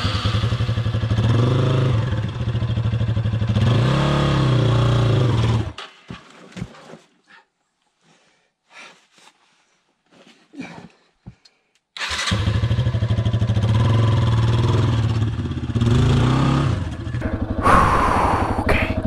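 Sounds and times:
motorcycle engine revving: 0.0s - 5.8s, 12.0s - 19.0s.

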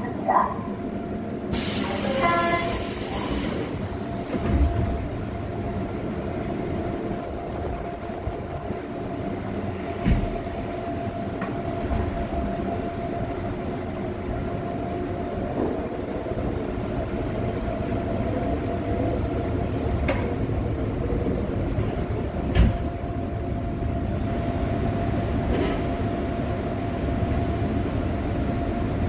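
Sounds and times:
train car humming: 0.0s - 29.0s
train doors closing hiss: 1.5s - 5.0s, 22.4s - 23.0s, 25.4s - 26.0s.

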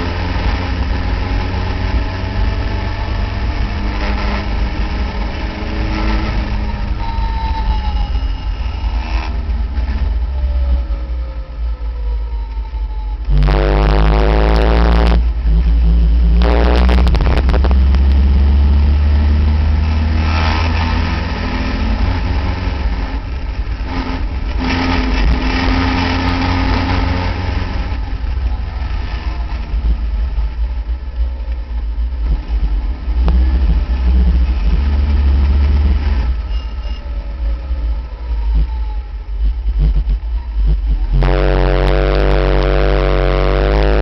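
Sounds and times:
wind rumble on microphone: 0.0s - 44.0s
race car engine running hard: 13.2s - 37.0s, 38.4s - 44.0s.

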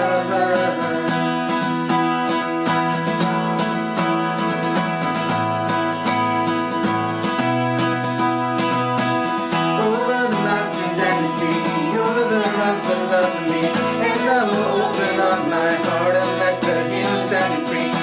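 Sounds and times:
person singing: 0.0s - 1.8s, 9.7s - 18.0s
acoustic guitar strumming: 0.0s - 18.0s.

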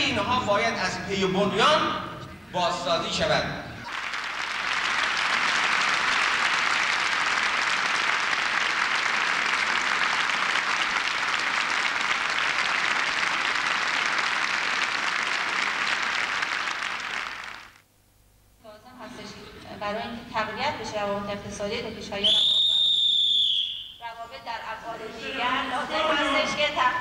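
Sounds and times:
audience applauding: 3.8s - 17.8s.

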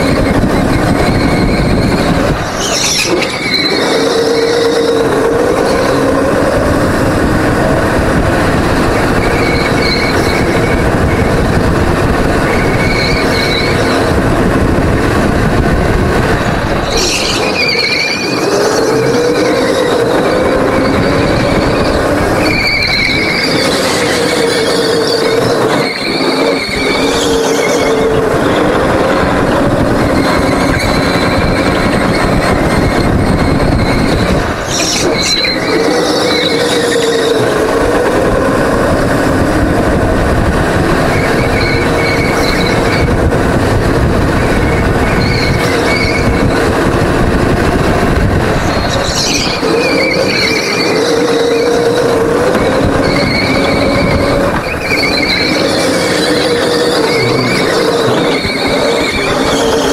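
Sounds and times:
tyre squeals: 0.0s - 6.6s, 9.2s - 11.2s, 16.8s - 29.0s, 30.0s - 37.9s, 44.6s - 46.6s, 48.6s - 59.9s
go-kart engine running hard: 0.0s - 59.9s.

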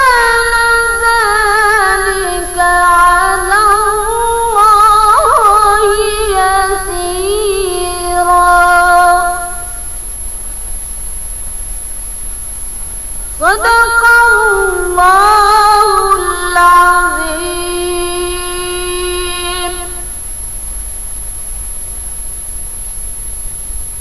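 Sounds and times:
woman reciting melodically: 0.0s - 10.0s, 13.2s - 20.1s
steady hiss: 0.0s - 24.0s.

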